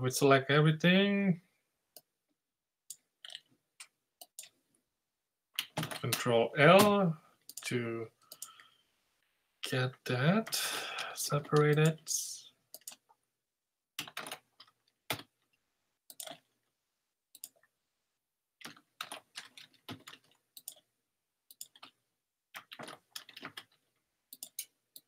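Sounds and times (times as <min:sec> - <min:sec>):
keyboard keys clicking: 0:14.0 - 0:15.3, 0:18.6 - 0:20.8, 0:22.6 - 0:25.0.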